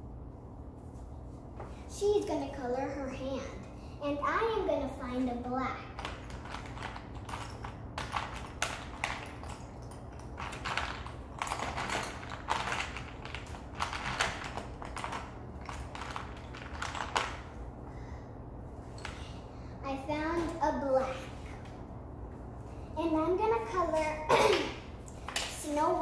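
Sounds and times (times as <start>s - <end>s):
crayons rattling in plastic case: 6.0s - 17.6s.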